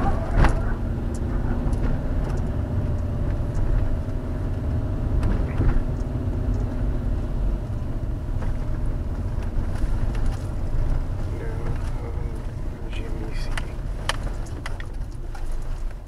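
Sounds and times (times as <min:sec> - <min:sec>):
car engine hum: 0:00.0 - 0:16.0
tyre rumble on dirt road: 0:00.0 - 0:16.0.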